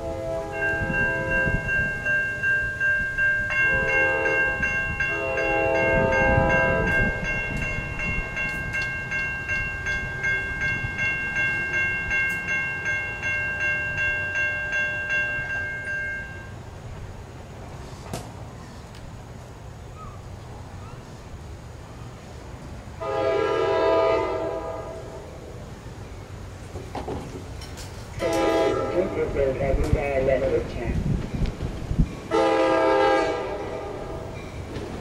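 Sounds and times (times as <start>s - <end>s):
train air horn blasts: 0.0s - 1.8s, 3.6s - 7.2s, 23.0s - 25.4s, 28.2s - 29.3s, 32.3s - 34.4s
bell dinging: 0.6s - 16.5s.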